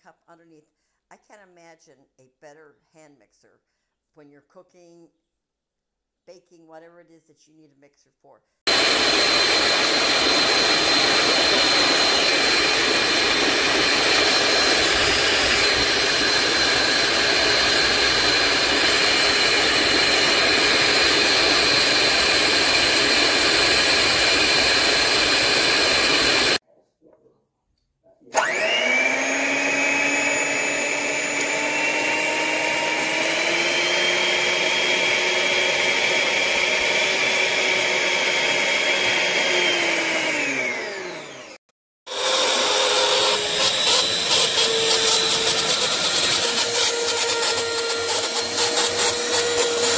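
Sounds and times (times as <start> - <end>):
electric hand mixer whine: 8.7 - 26.6, 28.3 - 49.9.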